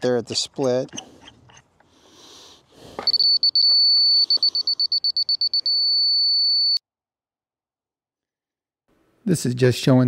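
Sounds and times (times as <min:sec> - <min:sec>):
laser level receiver beeping: 0:03.1 - 0:06.8.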